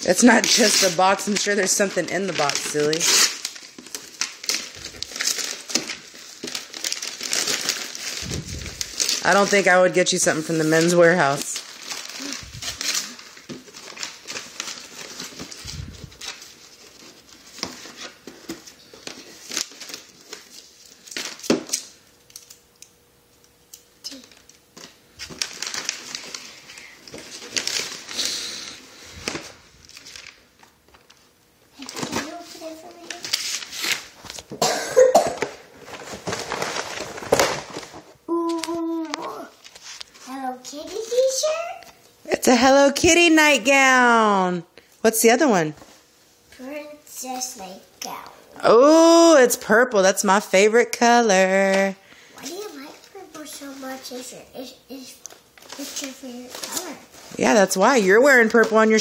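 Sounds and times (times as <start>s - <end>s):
paper crinkling and rustling: 0.2s - 22.6s, 23.7s - 34.6s, 35.4s - 42.0s, 51.5s - 54.4s, 55.3s - 59.0s.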